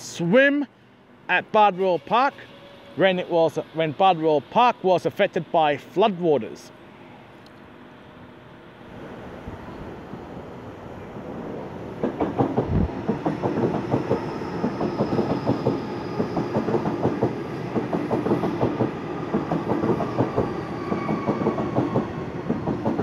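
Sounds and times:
train wheels clattering over rail joints: 12.0s - 20.5s.

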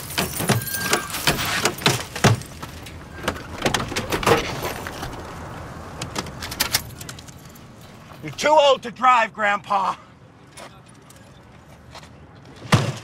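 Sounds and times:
car door clicks and rattles: 1.2s - 4.6s.

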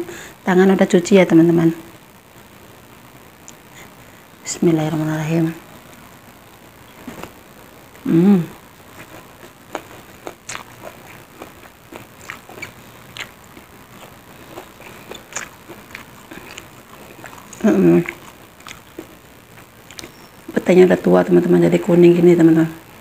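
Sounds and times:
person humming: 8.0s - 8.6s
chewing and wet mouth sounds: 8.9s - 20.7s.

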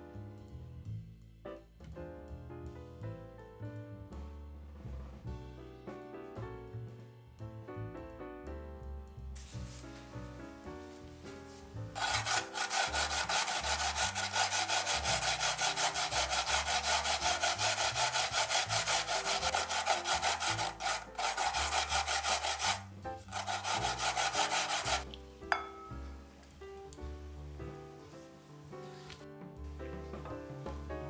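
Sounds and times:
soft background music: 0.0s - 31.0s
potato grating on plastic grater: 12.0s - 25.0s.

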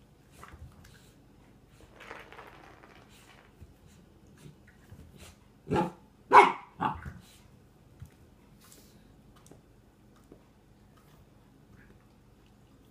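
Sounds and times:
puppy barking: 5.7s - 7.0s.

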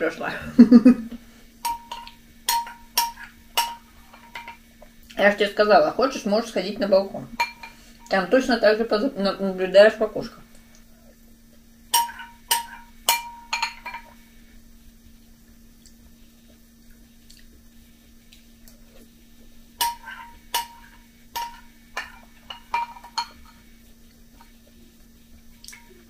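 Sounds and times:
spoon clinking against glass bowl: 1.6s - 4.6s, 7.4s - 7.8s, 12.0s - 14.1s, 19.8s - 23.6s.

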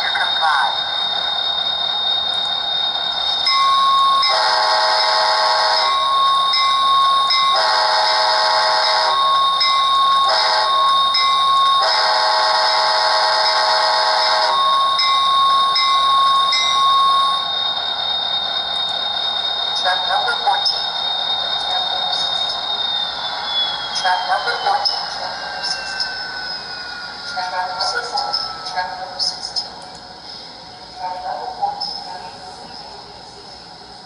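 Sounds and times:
steady high tone: 0.0s - 31.3s
diesel air horn from small speaker: 4.3s - 5.9s, 7.6s - 9.1s, 11.8s - 14.4s.

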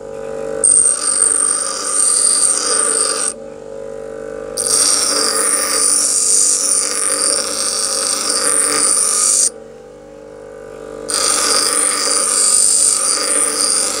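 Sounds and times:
bench grinder motor hum: 0.6s - 3.4s, 4.6s - 9.6s, 11.1s - 14.0s
high-pitched grinding hiss: 0.6s - 3.4s, 4.6s - 9.6s, 11.0s - 14.0s.

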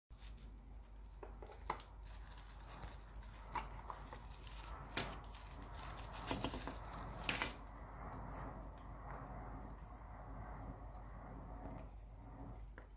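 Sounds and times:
packing wrap rustling and crinkling: 0.1s - 7.6s.

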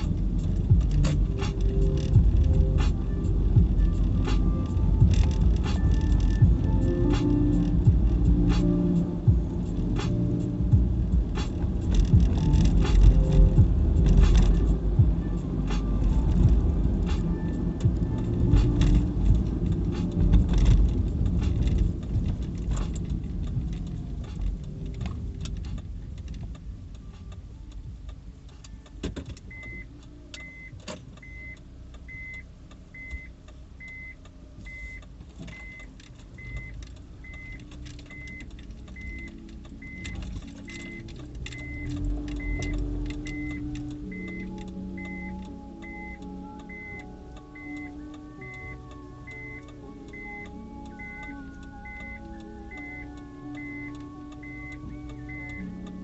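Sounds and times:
car engine and road rumble: 0.0s - 56.0s
short electronic beeps: 29.5s - 32.4s, 33.0s - 41.0s, 41.6s - 55.8s.

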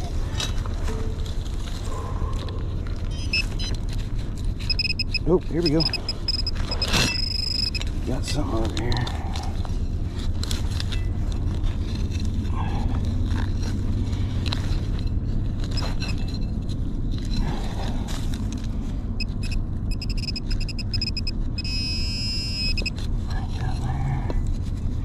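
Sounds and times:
steady low rumble: 0.0s - 25.0s
pinpointer beeping in rapid pulses: 3.1s - 3.8s, 4.6s - 7.9s, 19.2s - 23.0s.

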